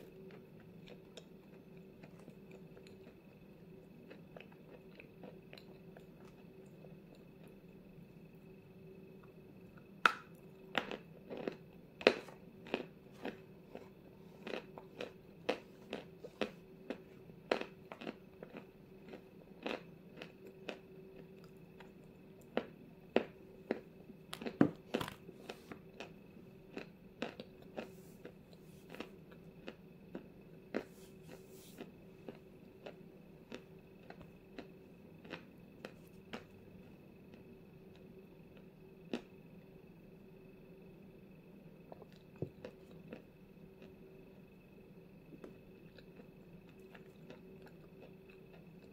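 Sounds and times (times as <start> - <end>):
chalk crunching while chewed: 0.1 - 7.6, 10.1 - 26.1, 26.7 - 36.5, 41.9 - 43.2, 45.4 - 48.9.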